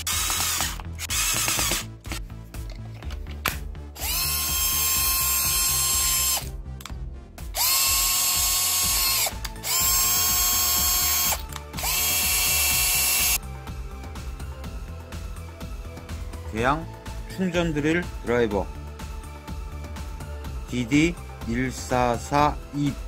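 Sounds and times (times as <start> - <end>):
cordless drill motor whining: 0.0 - 1.9, 4.0 - 6.5, 7.6 - 13.4.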